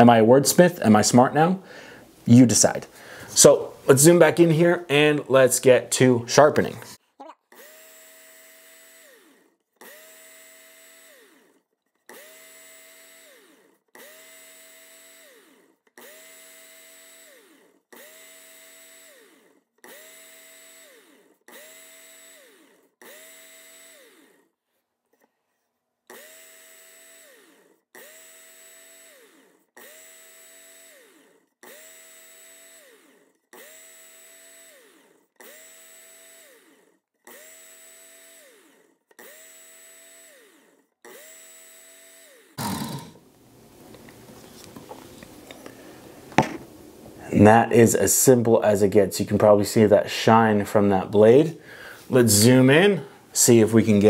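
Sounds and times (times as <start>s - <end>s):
electric belt sharpener whine: 7.6s - 24.5s, 26.1s - 43.4s.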